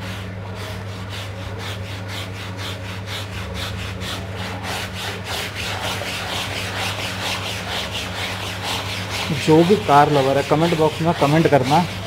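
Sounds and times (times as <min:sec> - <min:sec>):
hand scrubbing wet fabric: 0:00.0 - 0:12.0
steady low hum: 0:00.0 - 0:12.0.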